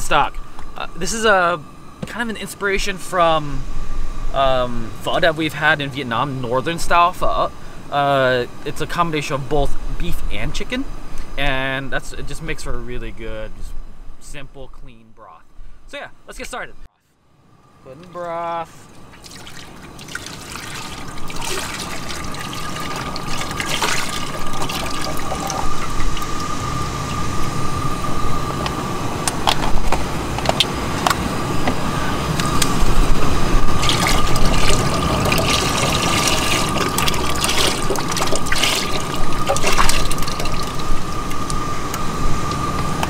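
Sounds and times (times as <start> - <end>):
thin steady high tone: 17.7 - 29.2
broth pouring into a pot: 19.1 - 27.6, 33.7 - 41.7.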